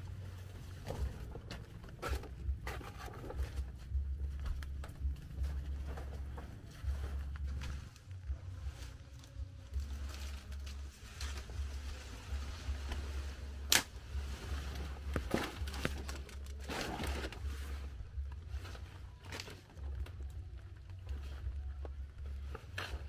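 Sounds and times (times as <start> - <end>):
leaf rustling and crackling: 6.9 - 20.2
leaf sharp crack: 9.8 - 17.6.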